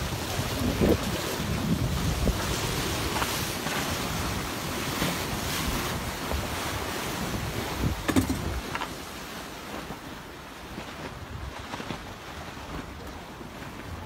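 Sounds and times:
water rushing along a hull: 0.0s - 14.0s
wind buffeting microphone: 0.0s - 14.0s
sharp knock: 8.1s - 8.6s.

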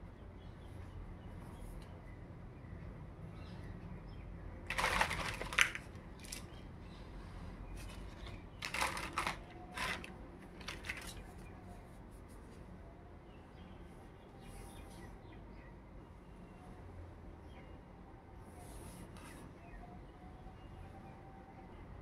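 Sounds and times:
crackly plastic rustling: 4.7s - 6.6s, 7.8s - 11.6s.

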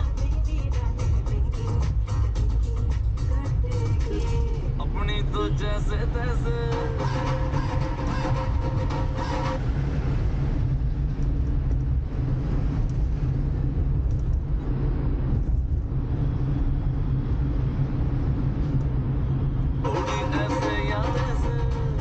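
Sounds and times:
music: 0.0s - 9.8s, 19.8s - 22.0s
car driving in traffic: 0.0s - 22.0s.

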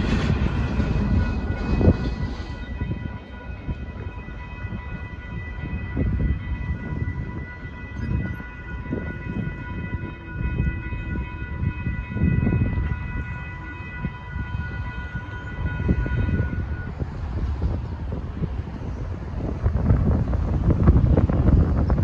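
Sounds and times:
wind rumbling on microphone: 0.0s - 22.0s
railroad crossing bells ringing: 0.7s - 17.0s.

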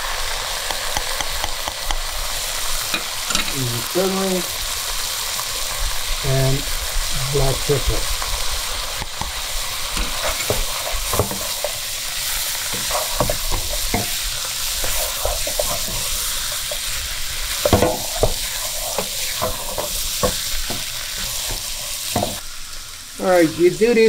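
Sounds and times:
meat and onions sizzling in oil: 0.0s - 24.0s
wooden spoon scraping a pot: 9.9s - 22.4s.

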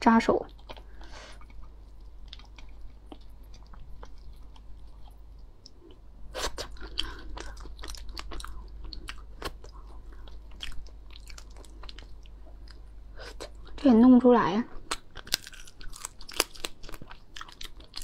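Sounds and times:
wet chewing: 0.5s - 13.8s, 14.8s - 18.0s
lobster shell cracking by hand: 14.9s - 18.0s.

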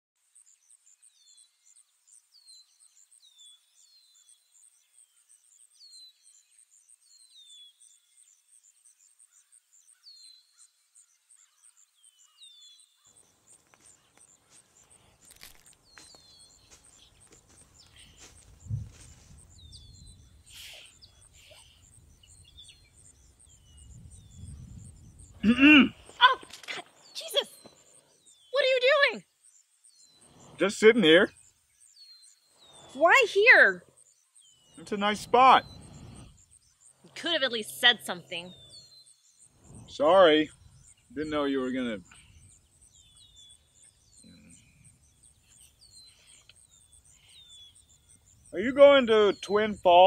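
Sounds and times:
bird chirps: 0.2s - 50.0s
quiet rustling: 13.2s - 19.7s
high-pitched pulsing bird trill: 32.1s - 39.1s, 39.7s - 50.0s.

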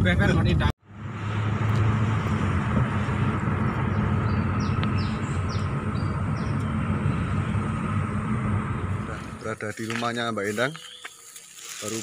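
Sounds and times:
car engine and road hum: 0.0s - 12.0s
bird chirping: 3.7s - 7.7s, 10.5s - 11.8s.

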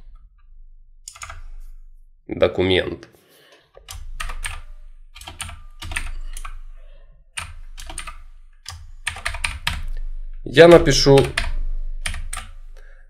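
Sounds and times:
typing on a keyboard: 3.8s - 6.6s, 7.4s - 9.9s, 11.2s - 12.6s.

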